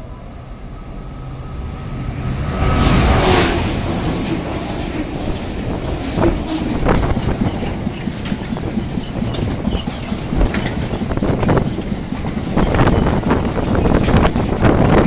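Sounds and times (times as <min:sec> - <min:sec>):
freight train rolling rumble: 0:00.0 - 0:15.0
wheels clacking over rail joints: 0:02.6 - 0:15.0.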